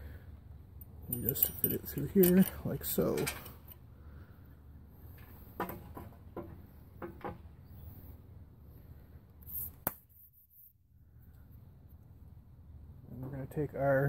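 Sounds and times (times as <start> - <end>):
metal axle and chain clinking: 0.8 - 3.8.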